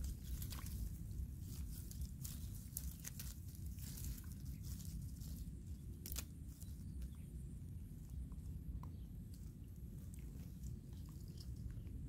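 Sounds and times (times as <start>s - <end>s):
twigs and leaves rustling: 0.0s - 12.0s
wind rumble on microphone: 0.0s - 12.0s
twig snapping: 6.0s - 6.6s.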